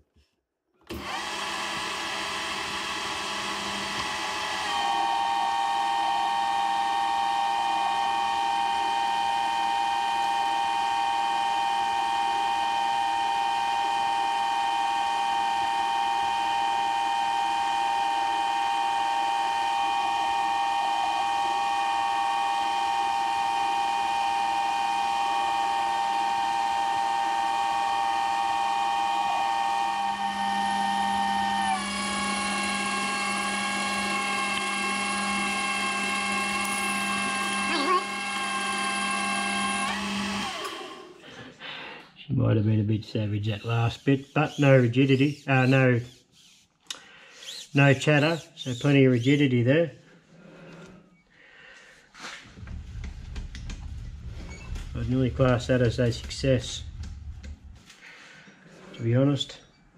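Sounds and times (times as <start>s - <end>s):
cutting tool turning metal: 0.9s - 41.1s, 43.5s - 49.5s
metal lathe gear whine: 1.0s - 41.2s, 52.5s - 58.0s.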